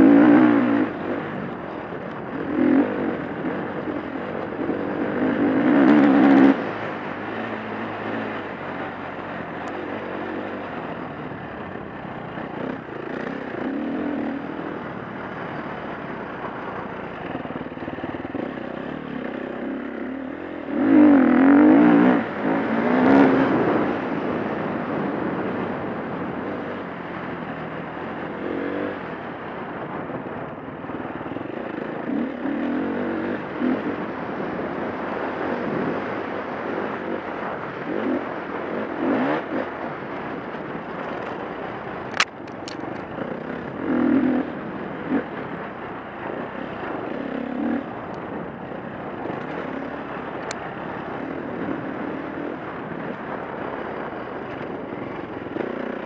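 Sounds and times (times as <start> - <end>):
dirt bike engine revving: 0.0 - 9.3, 12.4 - 25.3, 31.1 - 40.3, 40.9 - 48.3
sharp clicks: 42.1 - 43.1.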